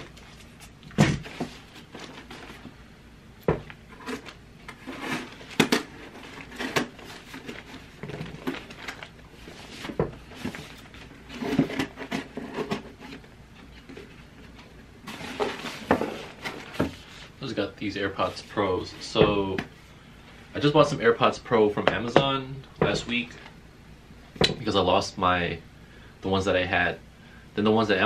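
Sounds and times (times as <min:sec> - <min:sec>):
cardboard knocks and scrapes: 0:09.4 - 0:13.2, 0:15.1 - 0:17.1.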